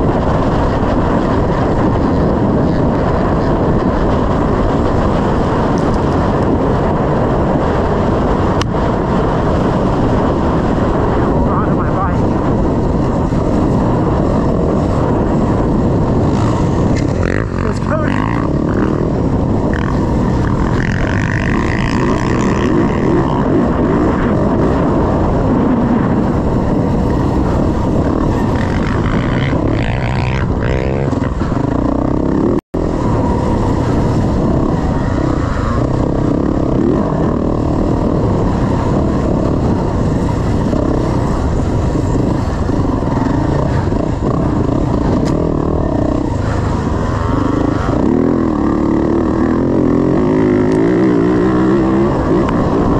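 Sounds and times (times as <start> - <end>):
bike rumbling over dirt: 0.0 - 52.9
dirt bike engine revving: 13.0 - 52.9.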